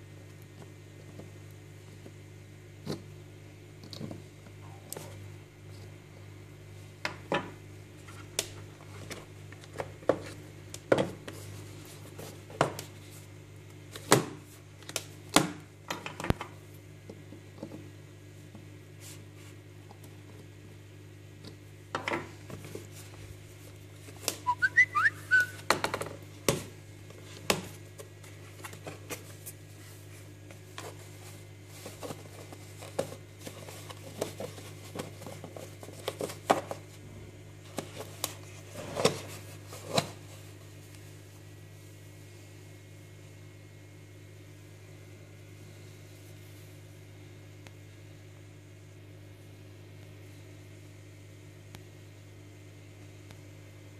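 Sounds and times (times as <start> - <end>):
wavering high chirp: 24.5 - 25.6.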